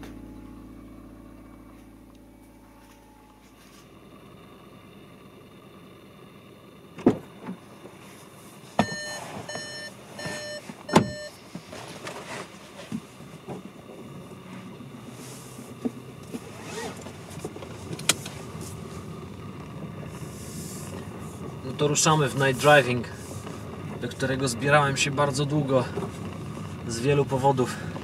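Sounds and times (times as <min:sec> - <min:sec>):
thumps inside car: 0:07.0 - 0:07.6, 0:08.7 - 0:13.8
car warning beeps: 0:08.8 - 0:11.4.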